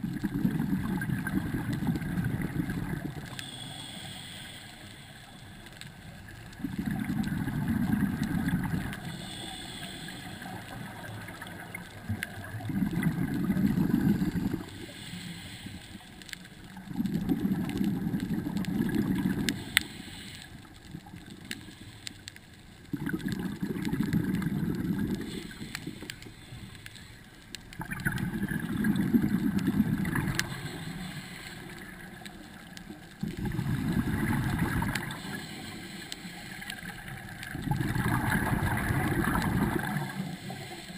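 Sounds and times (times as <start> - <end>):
bubbles gurgling underwater: 0.0 - 3.4, 6.2 - 9.2, 10.4 - 14.7, 16.7 - 19.7, 22.8 - 25.8, 27.7 - 30.9, 31.6 - 35.4, 36.7 - 40.5
regulator inhale hiss: 2.0 - 6.2, 7.2 - 12.2, 13.0 - 17.0, 19.0 - 22.8, 24.3 - 27.6, 29.6 - 38.2, 39.1 - 40.9.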